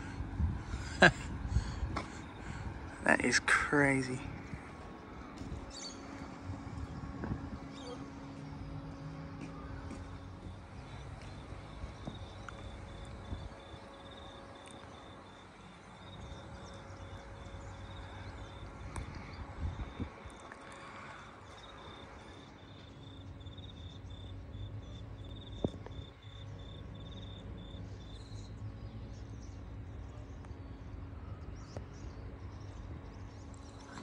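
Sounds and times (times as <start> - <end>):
low outdoor rumble: 0.0 - 34.0
insect chirping: 11.6 - 18.8, 19.9 - 28.4.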